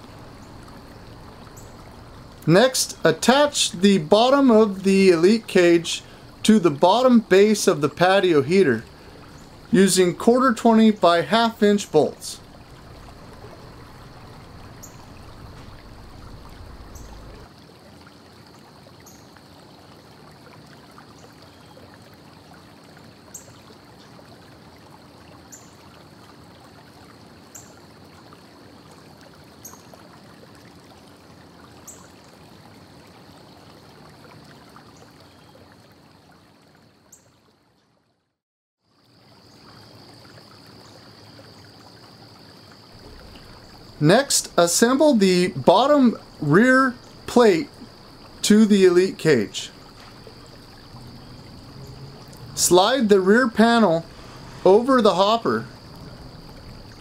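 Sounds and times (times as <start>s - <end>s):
background hiss: 0.0s - 17.5s, 39.2s - 57.0s
faint ticks: 49.8s - 52.6s.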